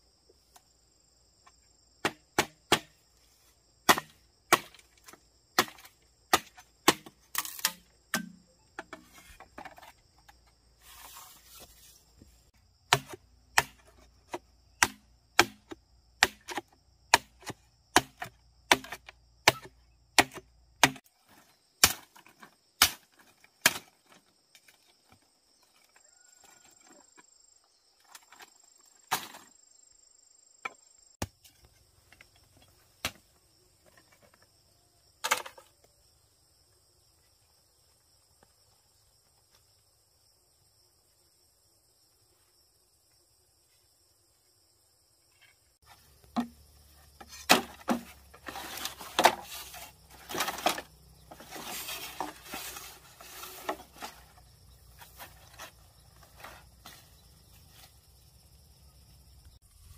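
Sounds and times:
machete chopping bamboo: 2.0 - 3.0, 3.8 - 9.0, 12.9 - 21.1, 21.8 - 24.0, 46.3 - 46.6, 47.2 - 52.4.

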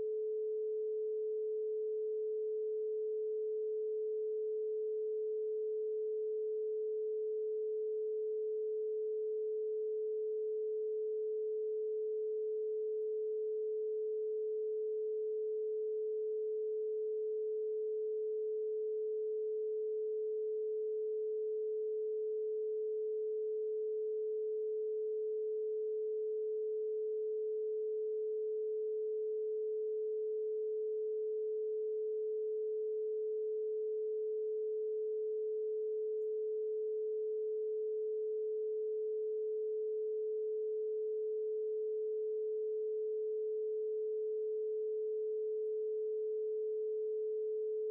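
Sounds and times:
electronic sine tone: 0.0 - 47.9.

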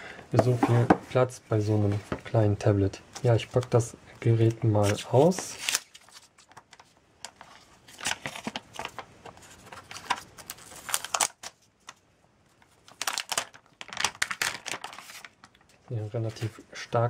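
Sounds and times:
plastic film peeling and crackling: 4.8 - 16.9.

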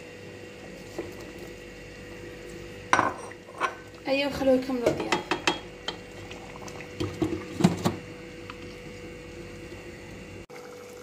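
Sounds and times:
faint steady hum: 0.0 - 11.0.

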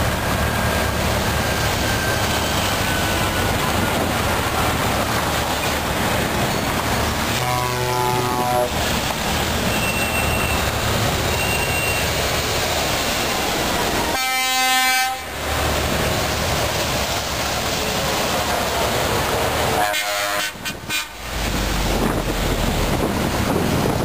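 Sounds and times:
heavy trucks rumbling past: 0.0 - 24.0
truck air horn: 7.3 - 8.8, 14.1 - 15.3, 19.8 - 21.2.

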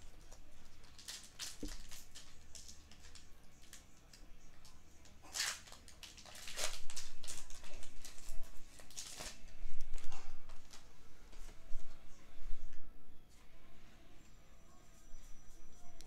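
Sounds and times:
foil wrapper crinkling: 0.8 - 4.2, 5.2 - 10.8
trading cards rustling: 5.3 - 10.9.

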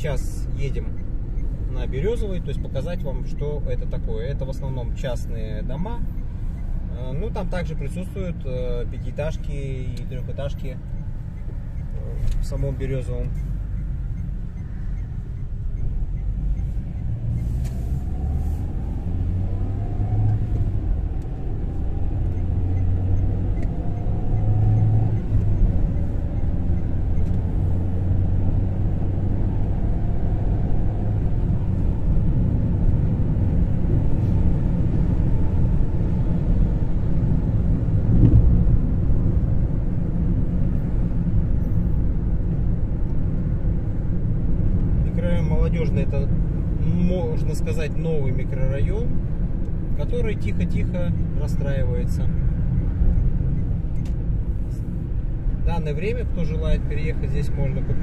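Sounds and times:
car engine and road rumble: 0.0 - 58.0.

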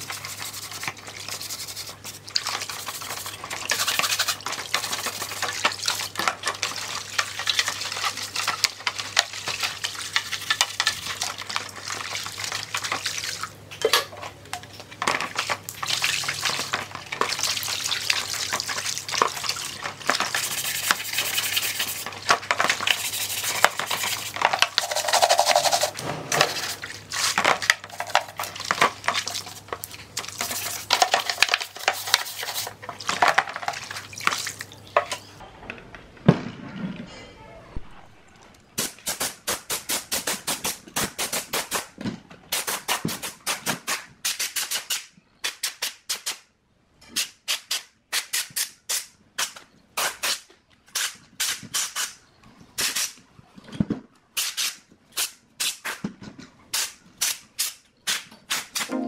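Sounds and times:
sponge scrubbing: 0.0 - 7.0, 19.5 - 27.4.

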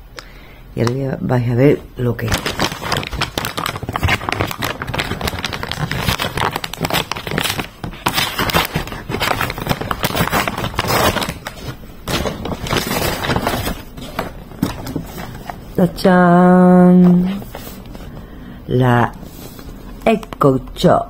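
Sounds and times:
packaging tearing and crackling: 2.2 - 15.6.

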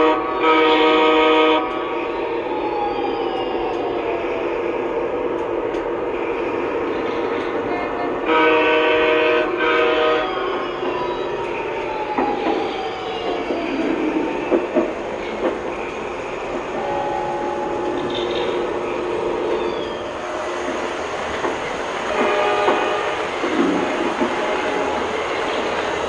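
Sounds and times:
horn-like tone: 0.0 - 2.2, 7.7 - 10.5, 16.8 - 18.0, 22.1 - 23.2
wheels clacking over rail joints: 10.6 - 20.0, 20.6 - 26.0.

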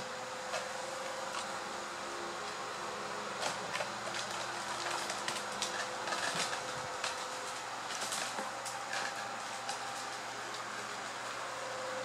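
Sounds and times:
mechanical room hum: 0.0 - 12.0
paws and paper rustling: 3.4 - 11.6.

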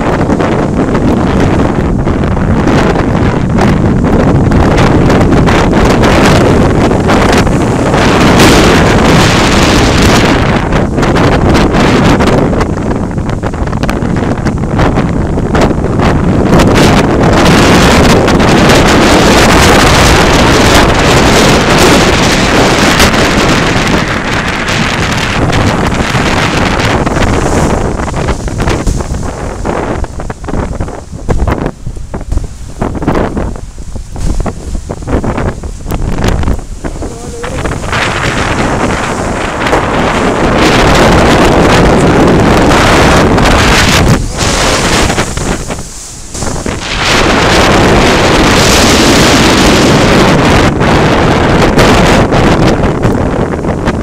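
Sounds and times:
rough sea rushing: 0.0 - 54.0
surf breaking against rocks: 0.0 - 54.0
wind buffeting microphone: 0.0 - 54.0.

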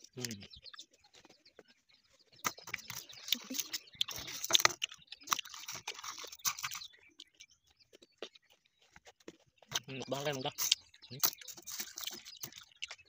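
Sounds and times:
crunching and chewing mango: 0.0 - 13.0.

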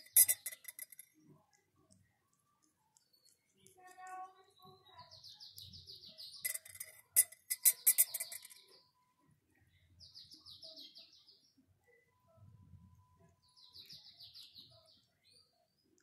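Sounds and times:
metal spoon clinking on ceramic mug: 0.0 - 1.1, 6.5 - 8.6
small bird twittering: 0.0 - 1.2, 2.4 - 9.2, 13.0 - 16.0.

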